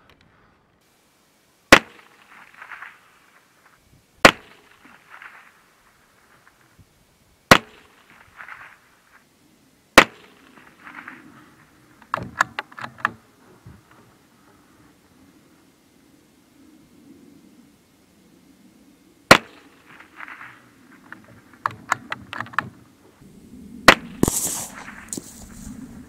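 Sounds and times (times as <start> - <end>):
rifle shots: 19.3 - 20.6, 23.7 - 26.0.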